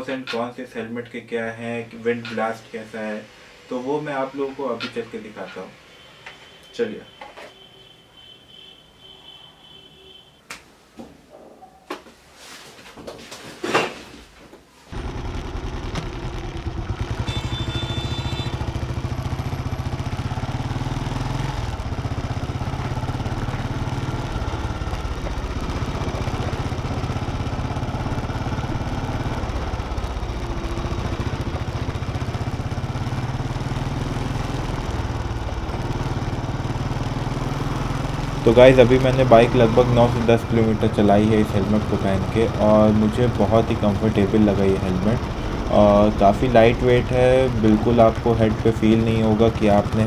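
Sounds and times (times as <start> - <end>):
motorcycle engine running: 14.9 - 50.0.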